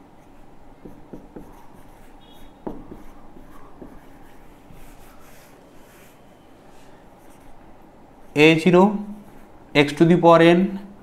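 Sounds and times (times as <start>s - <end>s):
marker scratching on whiteboard: 0.3s - 7.6s
marker tip tapping: 2.6s - 4.0s.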